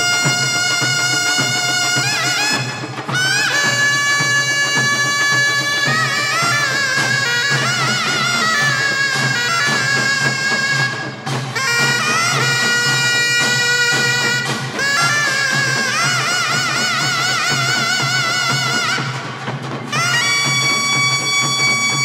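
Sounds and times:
percussion ensemble steady beat: 0:00.0 - 0:22.0
shawm playing wavering melody: 0:00.0 - 0:22.0.

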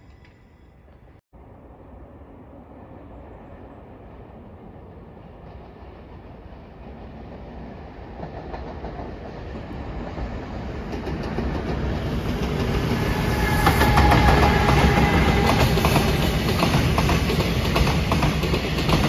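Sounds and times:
freight train rumbling past: 0:00.9 - 0:19.0.

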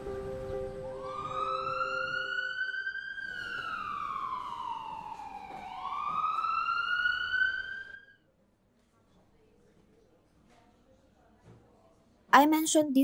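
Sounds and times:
soft background music: 0:00.0 - 0:02.4
siren wailing: 0:00.7 - 0:08.2.

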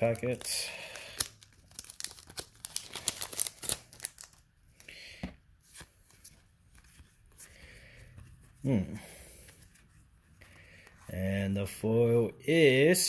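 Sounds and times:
foil wrapper crinkling and tearing: 0:00.0 - 0:04.4
cards being handled: 0:00.0 - 0:08.7.

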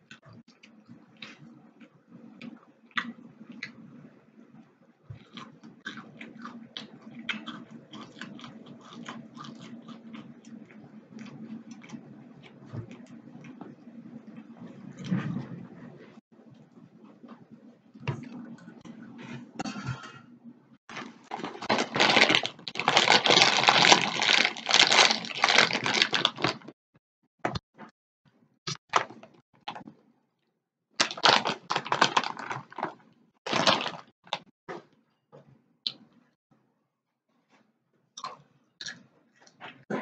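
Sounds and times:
chip crunching: 0:05.2 - 0:10.4, 0:20.9 - 0:26.7, 0:31.0 - 0:34.4
plastic snack bag crinkling: 0:20.9 - 0:26.8, 0:31.0 - 0:34.4.

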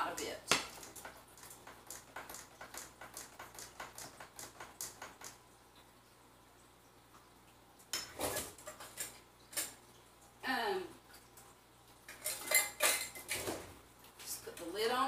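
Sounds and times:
kitchen items clattering: 0:08.0 - 0:09.8, 0:12.1 - 0:14.4.

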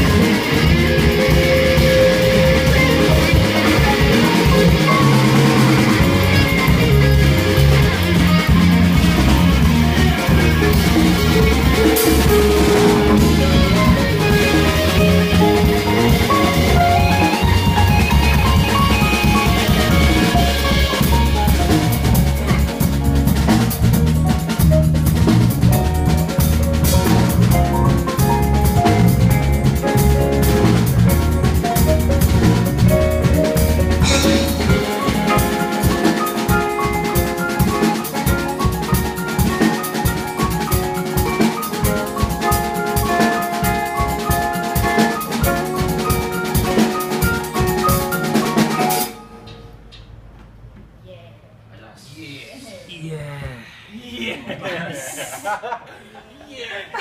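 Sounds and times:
drum hits: 0:00.0 - 0:44.2
live band playing: 0:00.0 - 0:50.3.

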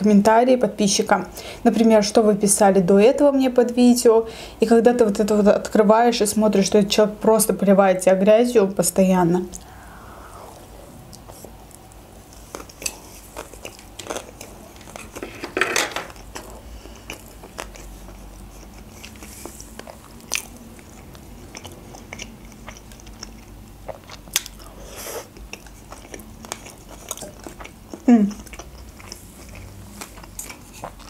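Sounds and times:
chewing with mouth clicks: 0:10.6 - 0:15.3, 0:16.1 - 0:31.0.

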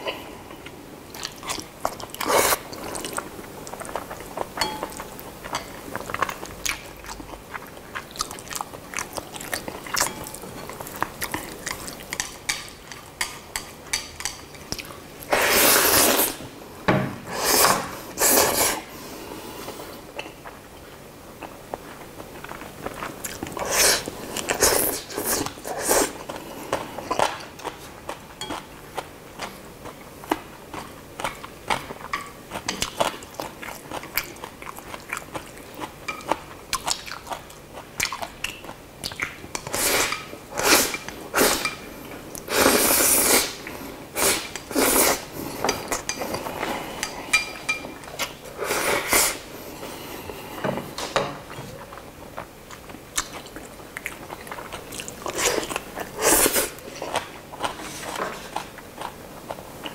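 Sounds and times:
slurping noodles: 0:15.3 - 0:16.4, 0:42.5 - 0:43.6
wet chewing: 0:51.8 - 0:59.9.

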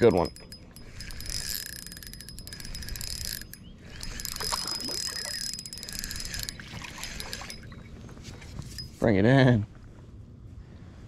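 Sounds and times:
insects chirring: 0:00.0 - 0:08.1.

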